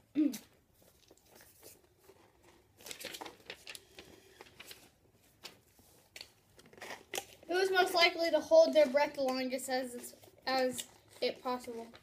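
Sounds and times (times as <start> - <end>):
paper rustling and crinkling: 0.8 - 7.6.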